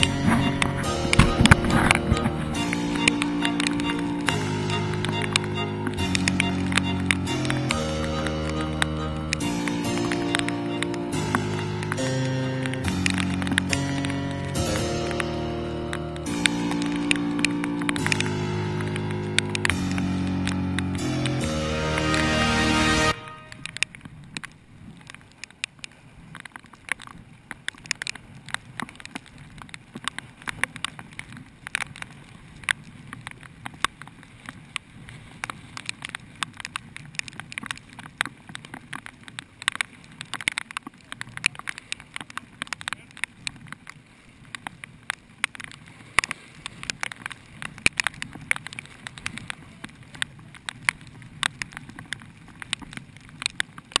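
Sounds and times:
raindrops tapping on plastic housing: 0:00.0 - 0:22.1, 0:23.4 - 0:54.0
faint low rumble: 0:00.0 - 0:25.4.

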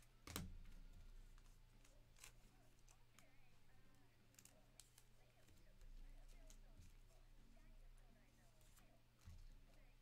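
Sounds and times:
trading cards clicking and rustling: 0:00.0 - 0:07.2
low steady hum: 0:00.0 - 0:10.0.

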